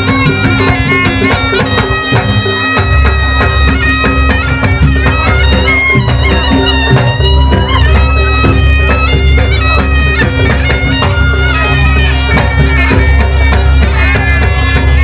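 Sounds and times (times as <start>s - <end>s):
hand drum strokes: 0.0s - 15.0s
reedy double-reed trumpet melody: 0.0s - 15.0s.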